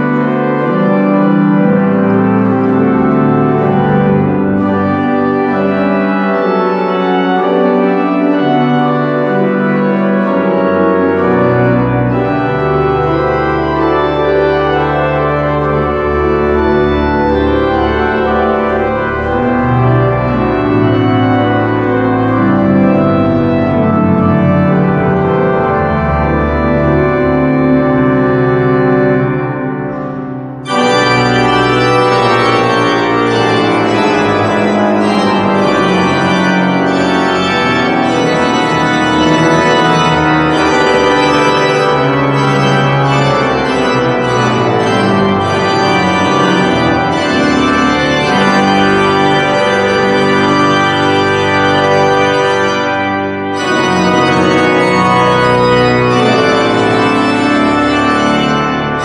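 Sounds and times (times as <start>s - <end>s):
pipe organ playing a march: 0.0s - 59.0s.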